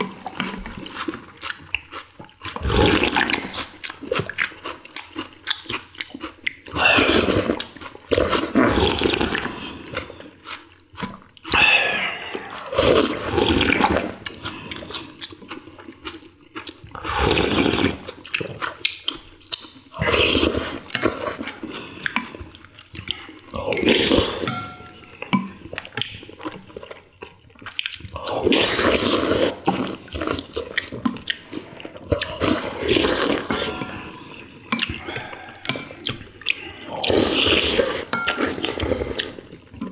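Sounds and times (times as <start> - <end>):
quiet chewing: 0.0 - 39.9
people slurping noodles: 2.5 - 4.4, 6.7 - 10.2, 11.4 - 15.2, 16.9 - 18.7, 19.9 - 26.6, 27.9 - 39.9.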